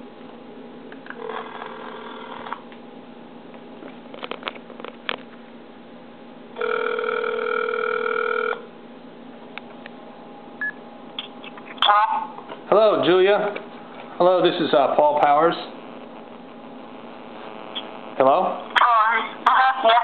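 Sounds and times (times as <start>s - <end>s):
phone ringback tone: 6.6s - 8.7s.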